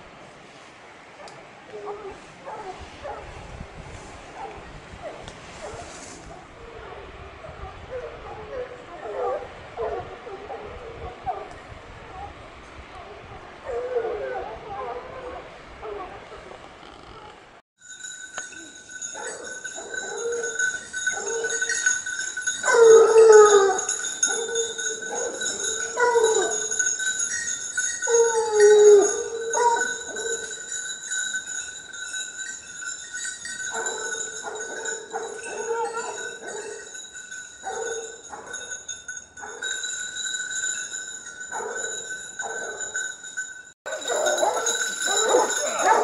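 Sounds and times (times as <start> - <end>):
hounds baying: 4.4 - 12.4, 19.0 - 30.9, 33.5 - 37.0, 37.6 - 38.8, 41.4 - 43.0, 43.9 - 46.0
steady high ringing: 17.8 - 46.0.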